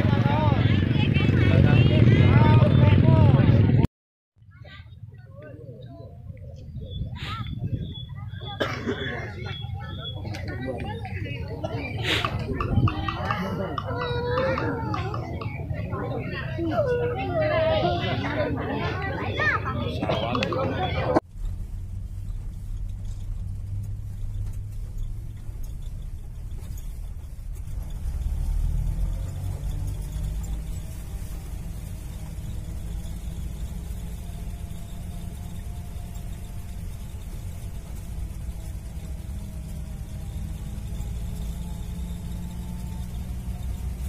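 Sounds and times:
engine and tyre rumble: 0:00.0 - 0:44.0
light rattles: 0:21.3 - 0:44.0.

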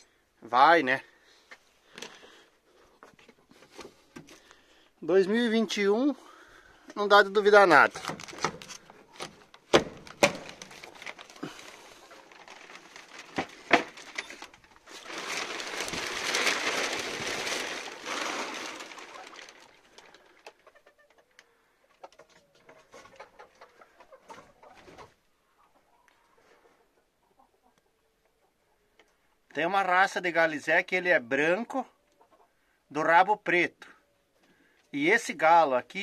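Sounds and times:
plastic sheeting crinkling: 0:07.7 - 0:20.5
chickens clucking softly: 0:20.0 - 0:29.4, 0:31.9 - 0:32.6.

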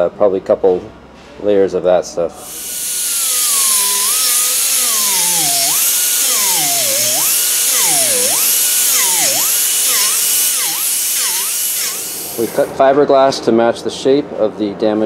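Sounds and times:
hand grinder whining: 0:02.4 - 0:12.7.

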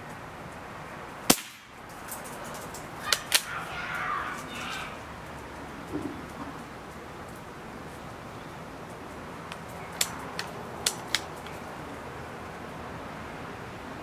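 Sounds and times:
outdoor hiss: 0:00.0 - 0:14.0
sharp clicks: 0:08.9 - 0:11.6.

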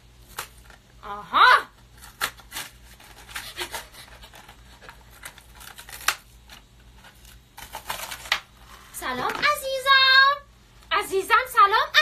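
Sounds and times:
paper packaging crinkling: 0:01.9 - 0:08.7.

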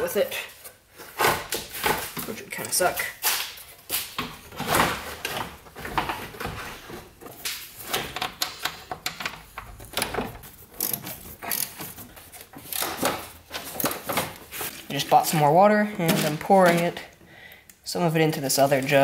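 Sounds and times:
hand tools and parts clicking: 0:01.2 - 0:15.0.

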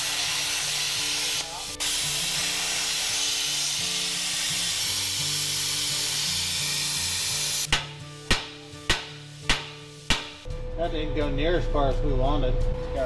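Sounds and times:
plasma cutter hissing: 0:00.0 - 0:07.8
sharp knocks: 0:07.7 - 0:10.4.

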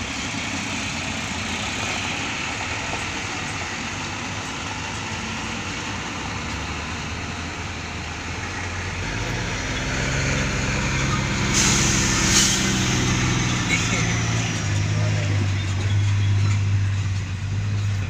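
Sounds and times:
diesel truck engines running: 0:00.0 - 0:18.0
short hiss: 0:11.5 - 0:12.7.

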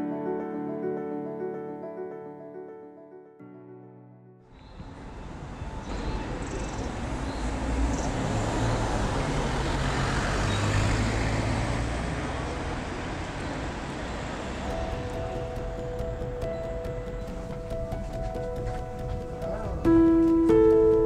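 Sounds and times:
street traffic noise: 0:04.6 - 0:20.8
vehicle engine hum passing: 0:05.0 - 0:17.9.

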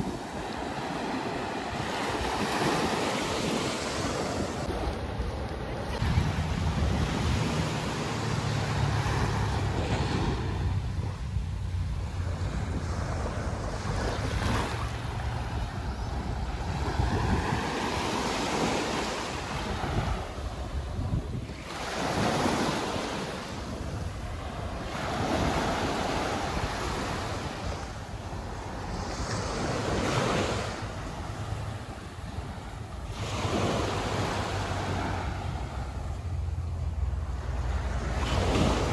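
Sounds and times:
wind buffeting microphone: 0:00.0 - 0:36.6
waves breaking on beach: 0:00.0 - 0:38.9.

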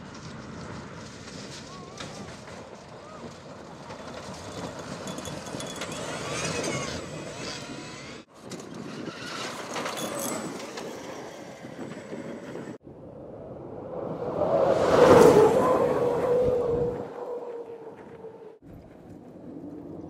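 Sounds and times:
tyres on gravel: 0:00.0 - 0:11.9.

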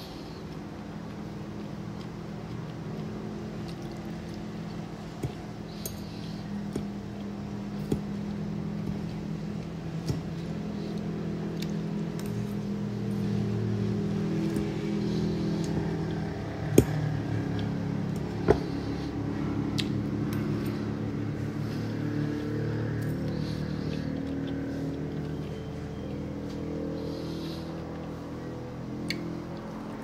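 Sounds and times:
person chewing: 0:00.0 - 0:28.1
low mechanical hum: 0:00.0 - 0:30.0.

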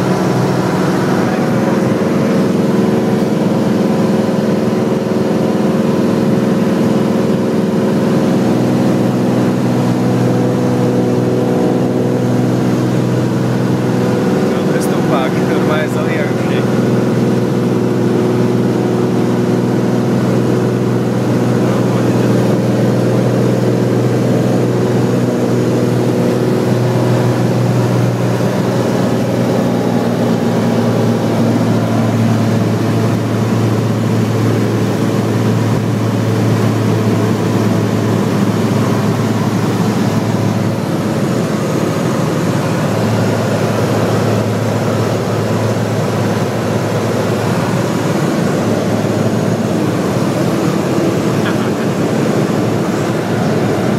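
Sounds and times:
aircraft engine drone: 0:00.0 - 0:53.9.

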